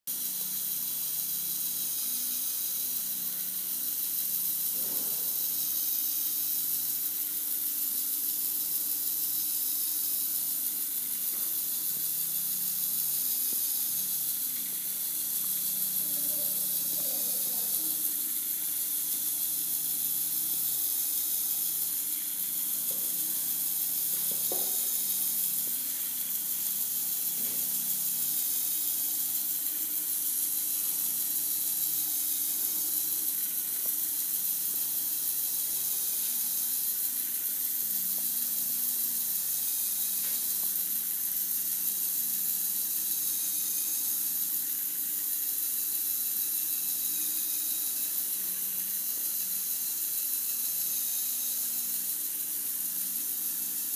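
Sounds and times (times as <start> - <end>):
toy motor humming: 0.1 - 53.9
high-pitched hiss: 0.2 - 6.4, 9.1 - 19.2, 20.8 - 53.9.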